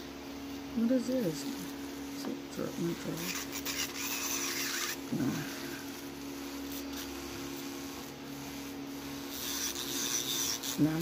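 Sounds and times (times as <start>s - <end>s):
machine hum: 0.0s - 11.0s
nail file rasping: 3.2s - 5.0s, 9.2s - 11.0s.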